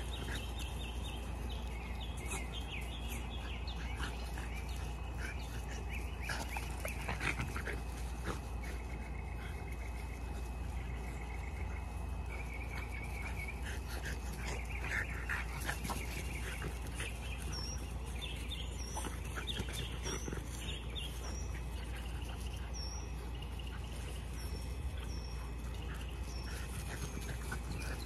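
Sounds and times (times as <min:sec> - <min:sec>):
bird chirping: 0:00.0 - 0:28.0
puppies squeaking and grunting: 0:00.0 - 0:28.0.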